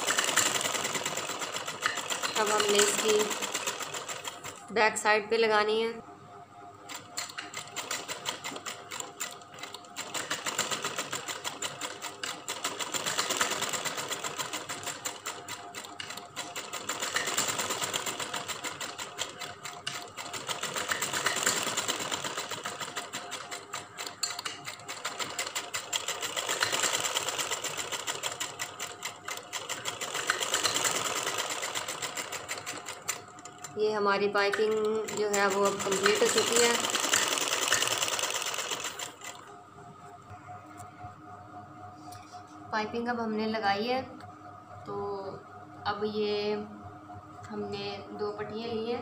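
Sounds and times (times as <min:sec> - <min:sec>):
sewing machine stitching: 0:00.0 - 0:04.7, 0:06.9 - 0:39.5.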